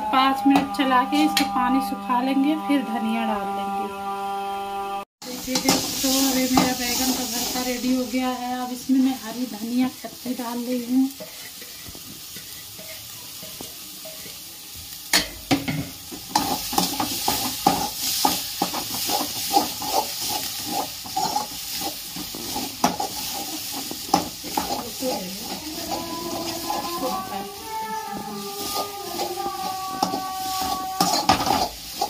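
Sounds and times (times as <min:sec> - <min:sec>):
light sizzle: 0:05.2 - 0:32.0
metal spoon scraping pan: 0:05.4 - 0:08.2, 0:11.1 - 0:14.4, 0:15.2 - 0:32.0.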